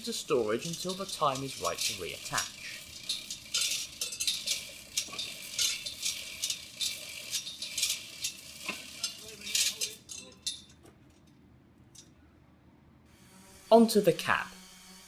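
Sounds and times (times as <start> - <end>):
metal chain rattling and clinking: 0.0 - 11.3.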